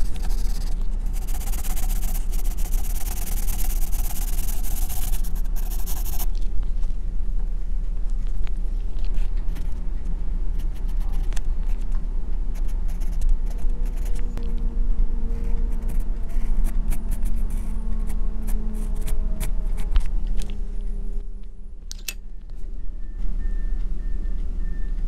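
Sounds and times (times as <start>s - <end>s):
pencil scratching on paper: 0.0s - 6.3s, 12.6s - 14.2s
steady low rumble: 0.0s - 25.0s.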